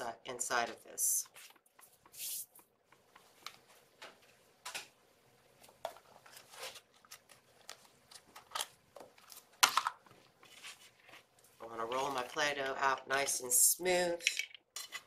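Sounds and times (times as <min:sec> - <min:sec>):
small objects clicking and rustling: 0:14.2 - 0:15.0.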